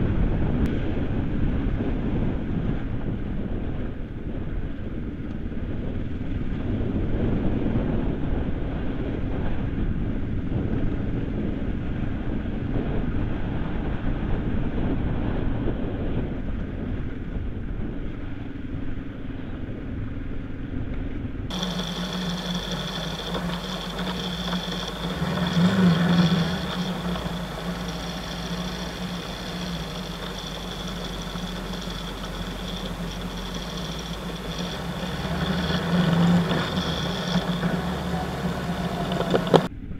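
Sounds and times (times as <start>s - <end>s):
wind noise: 0.0s - 39.9s
motorcycle engine running: 21.5s - 39.7s
tyres on gravel: 21.5s - 39.7s.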